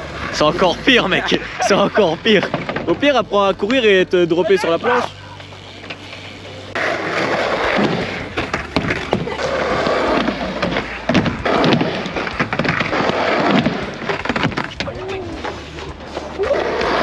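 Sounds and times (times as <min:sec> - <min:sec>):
skateboard wheels rolling: 0:00.0 - 0:17.0
skateboard clacks and thuds: 0:07.2 - 0:15.6.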